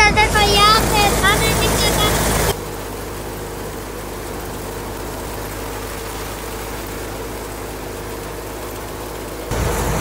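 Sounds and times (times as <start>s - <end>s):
thresher mechanical hum: 0.0s - 10.0s
grain pouring from chute: 9.5s - 10.0s.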